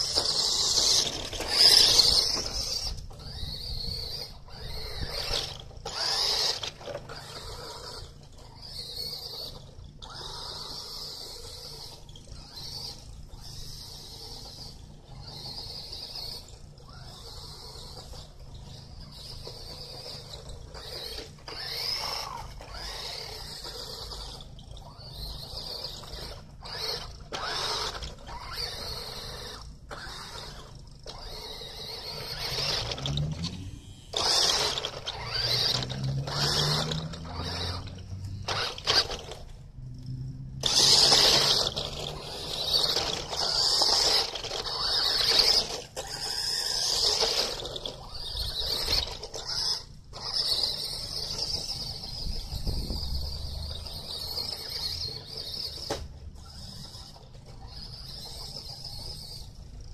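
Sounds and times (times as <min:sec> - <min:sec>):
toy car electric motor whining: 0:00.0 - 0:59.9.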